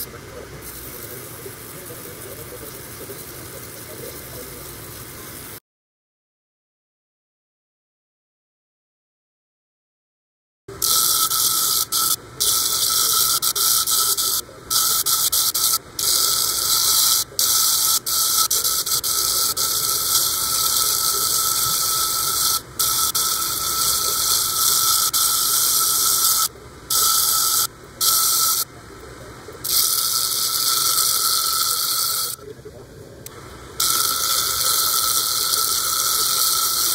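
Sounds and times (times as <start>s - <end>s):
grinding disc whine: 0.0s - 5.6s, 10.7s - 36.9s
crystal grinding squeal: 10.8s - 28.7s, 29.7s - 32.4s, 33.8s - 36.9s.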